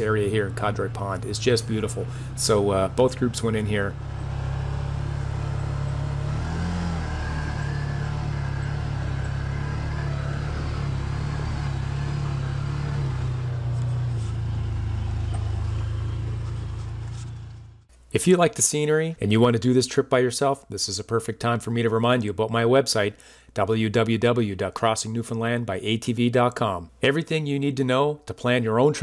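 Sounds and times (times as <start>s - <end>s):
utility vehicle engine running: 0.0s - 17.9s.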